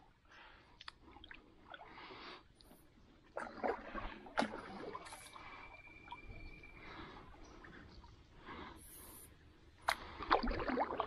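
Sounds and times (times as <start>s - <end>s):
paddle swishes and drips: 0.8s - 11.0s
paddle splashing: 3.3s - 9.2s, 9.8s - 11.0s.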